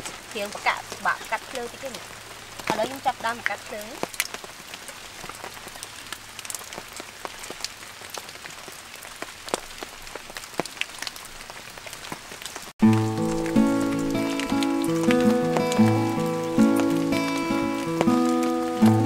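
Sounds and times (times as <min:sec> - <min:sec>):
rain pattering on leaves and tarp: 0:00.0 - 0:19.0
sharp drip ticks: 0:12.8 - 0:19.0.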